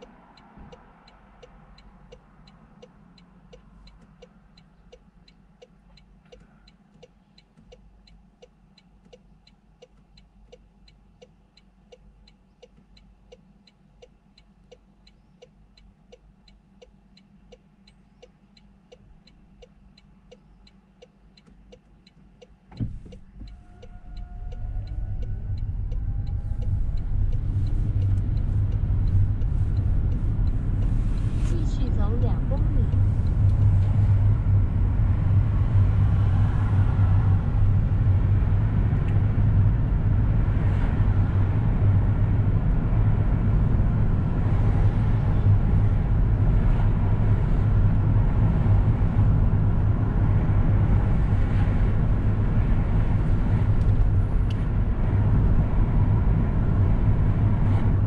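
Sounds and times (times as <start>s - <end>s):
low engine hum: 0.0s - 58.0s
road rumble: 0.0s - 58.0s
turn signal ticking: 0.0s - 58.0s
thump: 22.7s - 23.2s.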